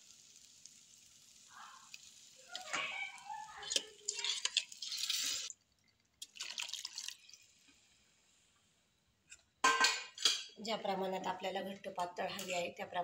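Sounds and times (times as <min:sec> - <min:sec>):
liquid pouring and splashing into pan: 0:00.0 - 0:08.7
faint frying hiss: 0:00.0 - 0:13.0.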